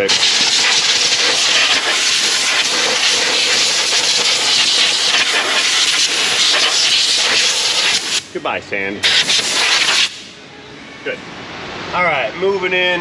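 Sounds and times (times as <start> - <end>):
compressed air hissing: 0.0 - 8.4, 9.0 - 10.4.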